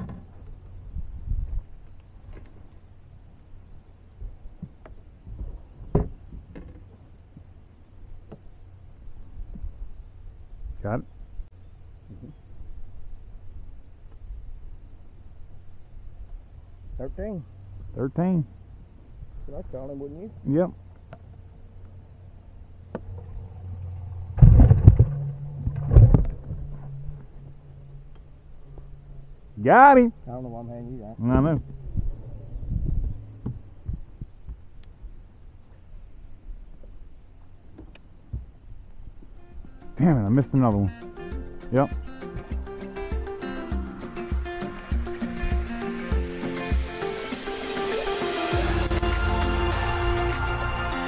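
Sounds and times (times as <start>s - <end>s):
steady low hum: 0.0s - 40.4s
knocks and thumps on boat deck: 4.6s - 6.9s
low rumble: 22.1s - 35.4s.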